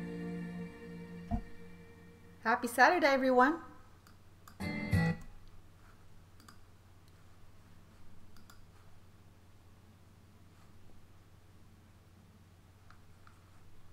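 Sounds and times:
low steady hum: 0.0s - 4.6s, 5.2s - 13.9s
faint scattered clicks: 6.4s - 7.2s, 8.3s - 8.7s.

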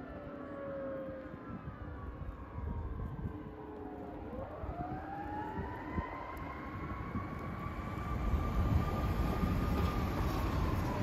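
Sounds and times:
fire engine siren: 0.0s - 11.0s
low rumble of truck: 6.4s - 11.0s.

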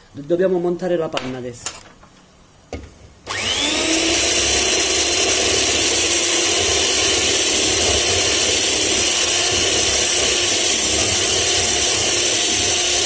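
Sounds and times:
beaters whipping cream in bowl: 3.3s - 13.0s
electric hand mixer whining: 3.3s - 13.0s.

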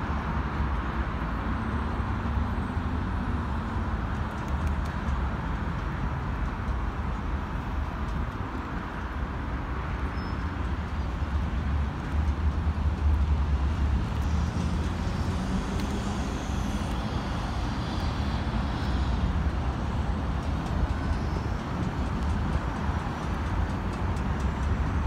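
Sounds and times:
road traffic rumble: 0.0s - 25.0s.

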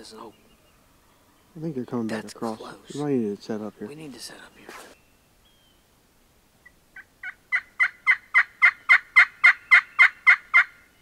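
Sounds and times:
turkey yelps: 7.0s - 10.8s.

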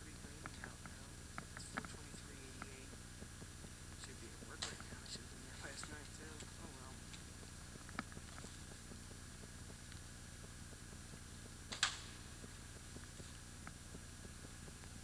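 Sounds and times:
low hum and hiss: 0.0s - 15.0s
sharp crack: 4.0s - 6.9s, 11.7s - 12.2s.

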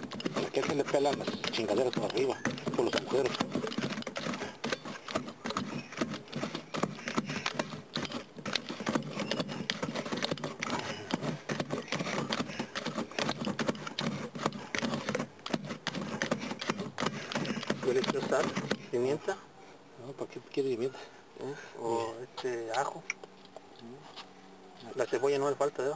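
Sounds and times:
cup pounding salsa in plastic tub: 0.0s - 19.2s.

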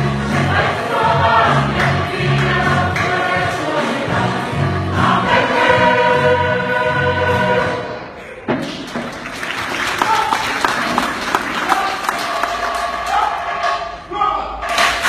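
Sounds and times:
choir singing in harmony: 0.0s - 8.2s.

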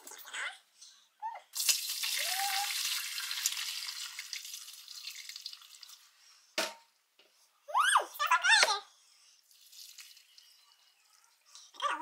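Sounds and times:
liquid pouring into metal bowl: 1.6s - 6.1s, 9.5s - 10.4s.

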